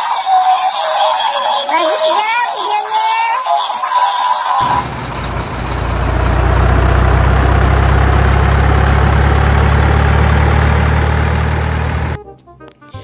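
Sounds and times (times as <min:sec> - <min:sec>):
music: 0:00.0 - 0:04.6, 0:12.2 - 0:13.0
truck engine idling: 0:04.6 - 0:12.2.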